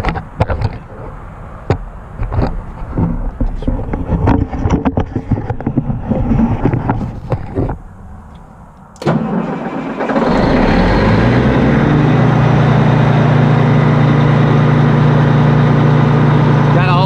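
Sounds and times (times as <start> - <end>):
diesel engine cranking and running: 8.8 - 17.0.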